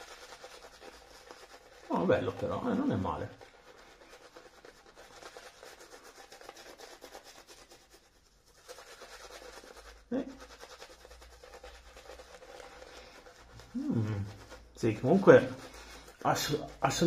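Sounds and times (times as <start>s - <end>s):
shaving brush rubbing lather: 0.0s - 17.0s
short voice sound: 13.7s - 14.4s.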